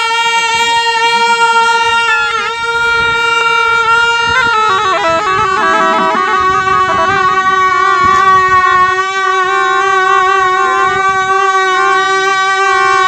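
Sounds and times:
double-reed horn playing: 0:00.4 - 0:08.4.

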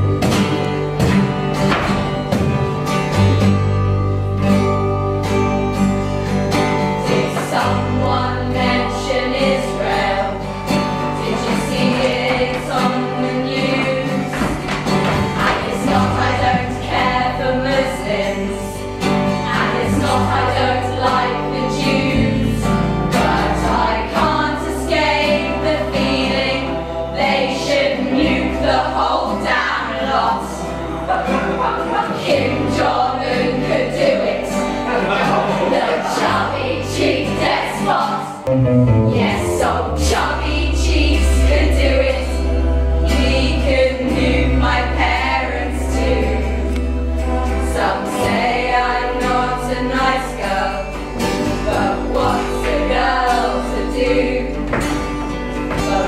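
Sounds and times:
acoustic guitar: 0:00.0 - 0:56.0
women singing together: 0:07.0 - 0:38.4, 0:39.4 - 0:46.8, 0:47.4 - 0:55.1
low bass line: 0:38.5 - 0:43.0.

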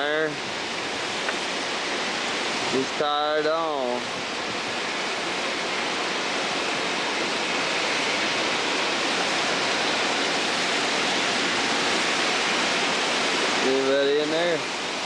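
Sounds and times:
rushing water in a lock: 0:00.0 - 0:15.0.

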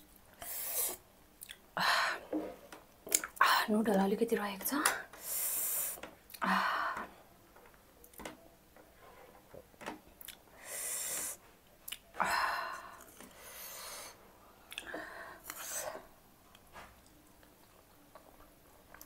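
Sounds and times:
wet mouth clicks: 0:00.8 - 0:01.6, 0:11.9 - 0:12.1, 0:14.7 - 0:14.9.

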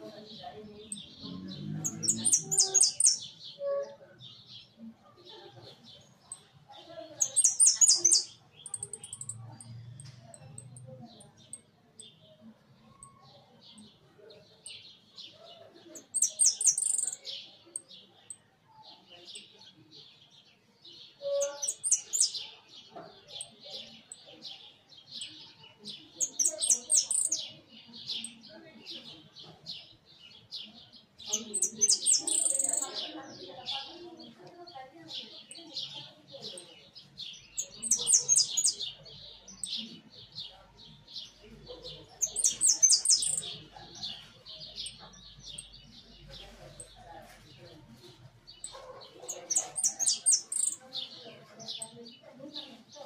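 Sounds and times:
finch chirping: 0:00.5 - 0:04.0, 0:07.2 - 0:12.1, 0:15.9 - 0:17.9, 0:21.2 - 0:22.4, 0:25.2 - 0:28.4, 0:31.2 - 0:33.2, 0:35.2 - 0:52.0.

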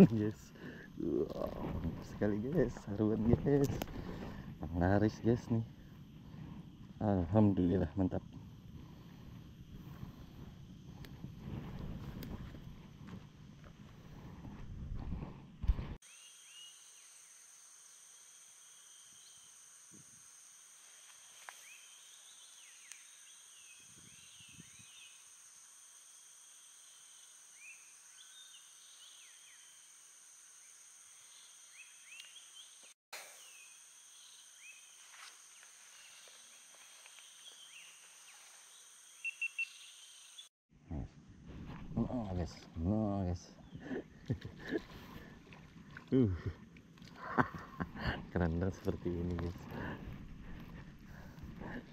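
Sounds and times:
insects buzzing at high pitch: 0:00.0 - 0:51.9
bird chirps and whistles: 0:39.2 - 0:40.0.

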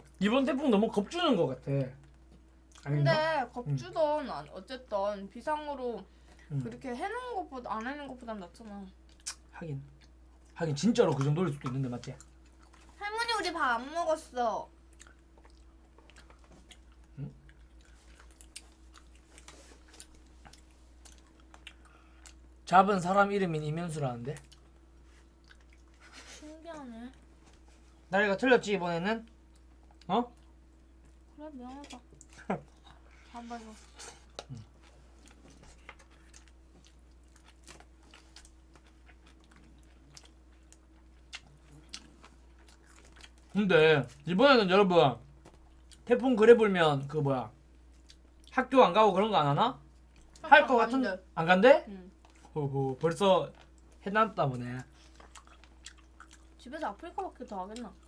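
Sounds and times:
faint steady hum: 0:00.0 - 0:58.0
chewing food: 0:07.6 - 0:13.0, 0:14.2 - 0:22.6, 0:24.2 - 0:28.1, 0:29.2 - 0:44.3, 0:45.3 - 0:46.4, 0:47.7 - 0:48.7, 0:49.8 - 0:50.5, 0:52.1 - 0:58.0
small mouth clicks and smacks: 0:09.0 - 0:10.6.

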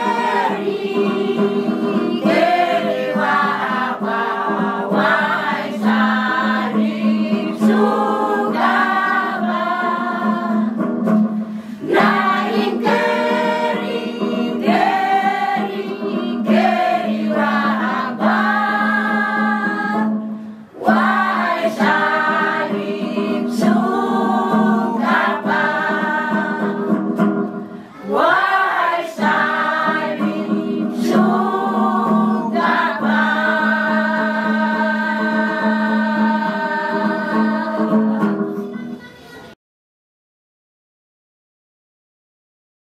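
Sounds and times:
choir singing a hymn: 0:00.0 - 0:10.8, 0:11.6 - 0:27.2, 0:28.0 - 0:38.6.

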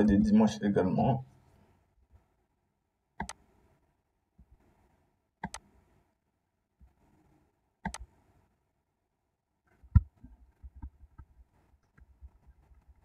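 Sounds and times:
computer mouse clicking: 0:03.2 - 0:03.4, 0:05.4 - 0:05.7, 0:07.8 - 0:08.1.

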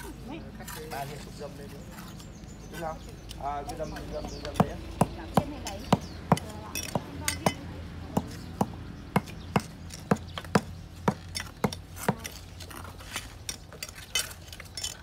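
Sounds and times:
trowel knocking bricks: 0:08.2 - 0:15.0.

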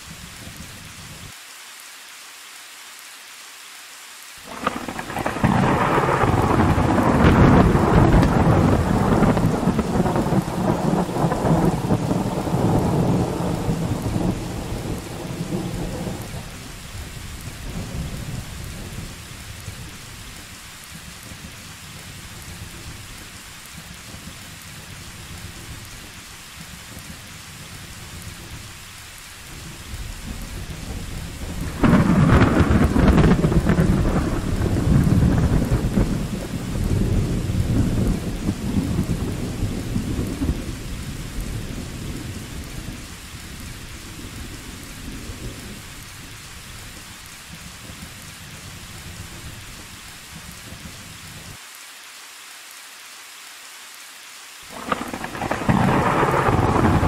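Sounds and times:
steady rain: 0:00.0 - 0:57.0
loud thunderclap: 0:04.4 - 0:19.9, 0:29.8 - 0:46.0, 0:54.7 - 0:57.0
thunder rumble: 0:04.4 - 0:51.6, 0:54.7 - 0:57.0.

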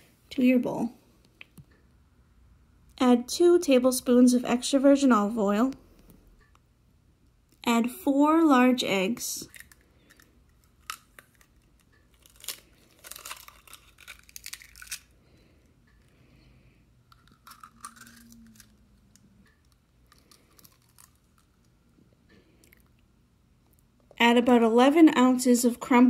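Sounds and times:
eggshells cracking: 0:09.5 - 0:15.2, 0:17.1 - 0:21.8.

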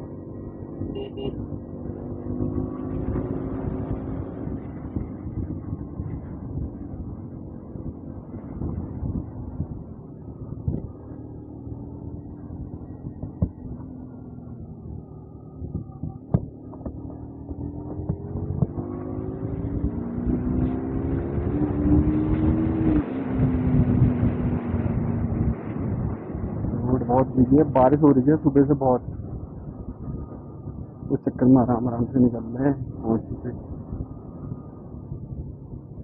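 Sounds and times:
wind on microphone: 0:01.8 - 0:11.0, 0:12.1 - 0:13.9, 0:14.5 - 0:28.3.

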